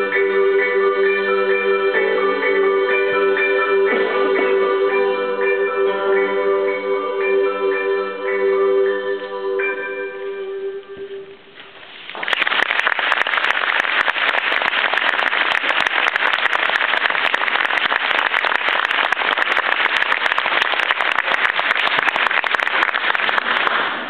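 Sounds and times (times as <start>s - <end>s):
audience applauding: 12.1s - 24.0s.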